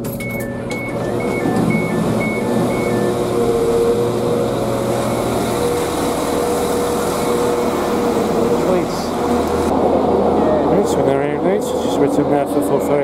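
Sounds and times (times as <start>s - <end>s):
two-tone train door beeps: 0.0s - 5.9s
station noise: 0.0s - 13.0s
train hum: 0.0s - 13.0s.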